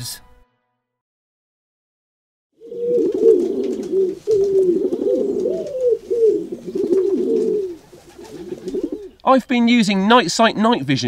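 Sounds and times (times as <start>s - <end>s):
pigeons cooing: 2.6s - 9.2s.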